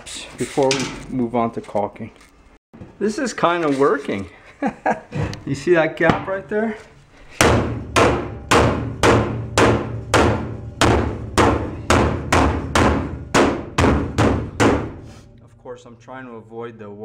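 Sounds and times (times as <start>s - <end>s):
hammer striking steel: 7.4s - 15.3s.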